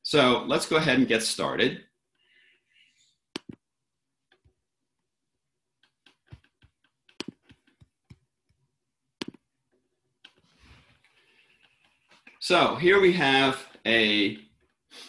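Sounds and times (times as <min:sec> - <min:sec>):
mouse and keyboard clicks: 0:03.3 - 0:03.6, 0:05.8 - 0:08.6, 0:09.2 - 0:09.4.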